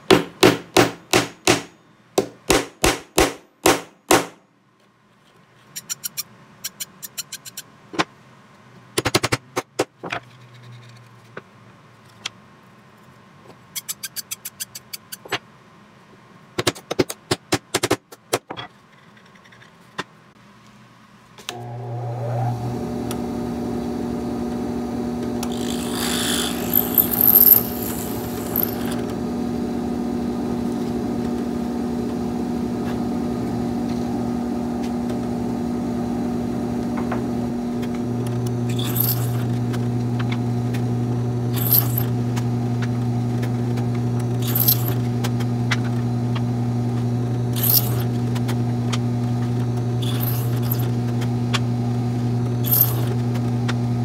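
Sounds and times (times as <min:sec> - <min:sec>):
drill press motor humming: 0:21.5 - 0:54.0
drill bit cutting into wood: 0:25.4 - 0:29.1, 0:38.7 - 0:39.5, 0:47.5 - 0:48.1.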